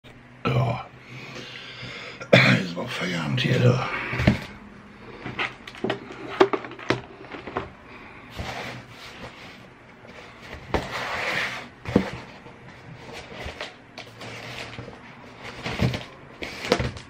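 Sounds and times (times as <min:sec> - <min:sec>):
cardboard box scraping: 0:08.3 - 0:17.0.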